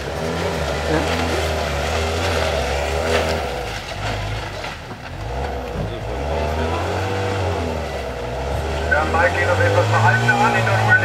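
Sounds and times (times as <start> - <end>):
buggy engine revving hard: 0.0 - 11.0.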